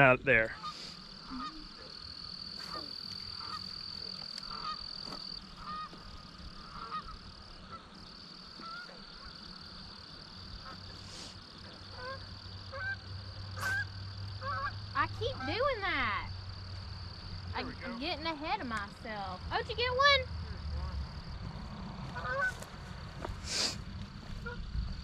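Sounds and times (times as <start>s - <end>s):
honk-like bird calls: 2.5s - 6.0s, 6.6s - 9.4s, 11.9s - 16.0s, 22.1s - 22.7s, 24.4s - 24.7s.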